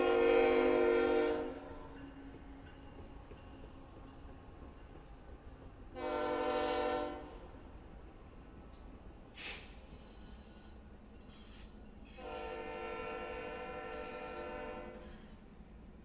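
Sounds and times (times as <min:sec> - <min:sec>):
locomotive air horn blast: 0:00.0 - 0:01.7, 0:06.0 - 0:07.4, 0:12.2 - 0:15.0
diesel locomotives rumbling: 0:00.0 - 0:16.0
short hiss: 0:09.3 - 0:12.2.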